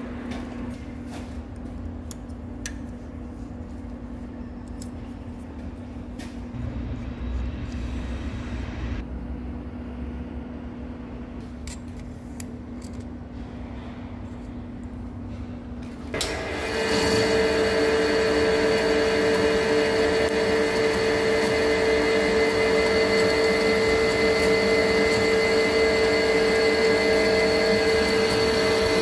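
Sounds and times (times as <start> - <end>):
machine-shop hum: 0.0 - 29.0
loud rushing noise: 6.5 - 11.4.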